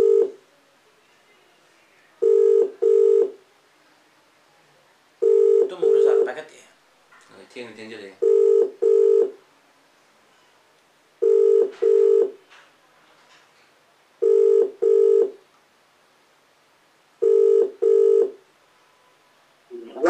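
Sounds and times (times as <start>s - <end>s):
phone ringback tone: 0.0s - 0.4s, 2.2s - 3.4s, 5.2s - 6.3s, 8.2s - 9.4s, 11.2s - 12.4s, 14.2s - 15.4s, 17.2s - 19.2s.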